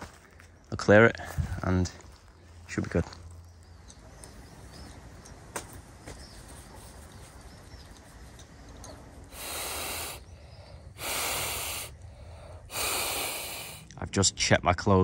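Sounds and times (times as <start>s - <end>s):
steady hiss bursts: 8.4s - 13.9s.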